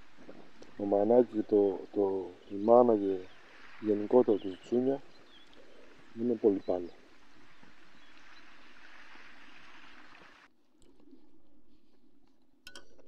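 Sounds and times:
soft wash of water: 0.0 - 10.5
small ticks: 5.2 - 5.8.

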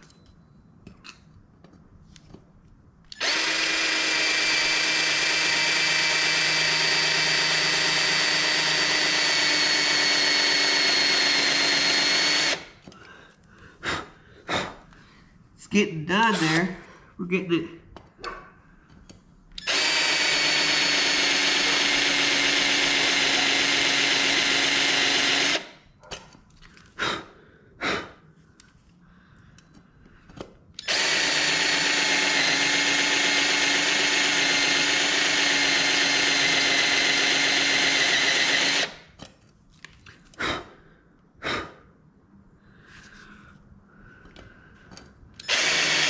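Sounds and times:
cordless drill cutting metal: 3.1 - 12.8, 19.6 - 25.8, 30.8 - 39.1, 45.4 - 46.0.

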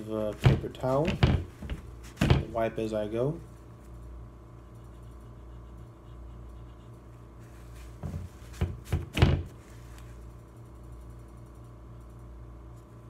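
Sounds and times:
paper towel scuffing on metal: 0.2 - 2.6, 7.4 - 10.2.

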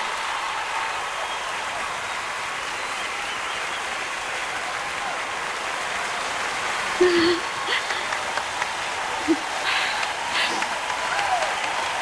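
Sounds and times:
crowd applauding: 0.0 - 12.0
shout from crowd: 8.8 - 12.0.

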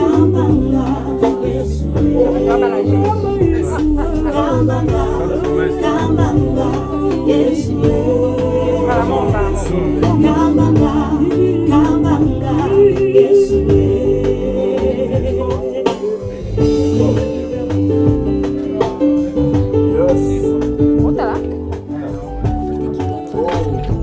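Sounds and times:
gospel choir singing in harmony: 0.0 - 20.6
low bass line: 0.0 - 24.0.

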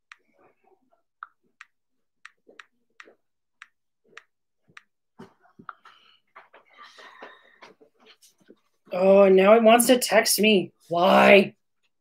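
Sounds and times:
fingertips tapping touchscreen: 1.2 - 6.6.

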